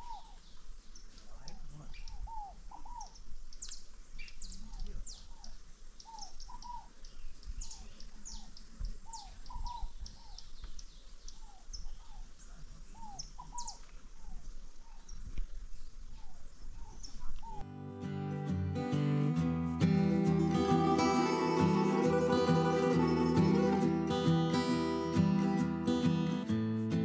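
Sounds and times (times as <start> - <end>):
high downward bird chirps: 20.0 - 25.6.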